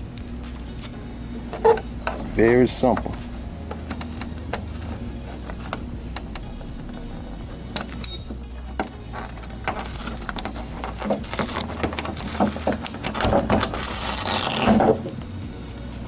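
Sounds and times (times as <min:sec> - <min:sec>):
decal peeling crackle: 0:09.0 - 0:15.3.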